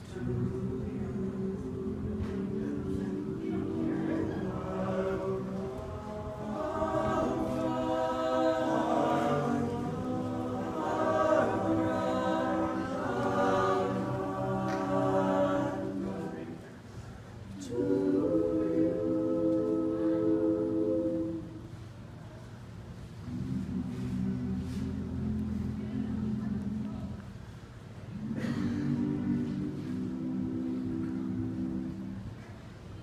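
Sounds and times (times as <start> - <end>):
male group singing in harmony: 0.0 - 16.7, 17.6 - 21.5, 28.2 - 32.3.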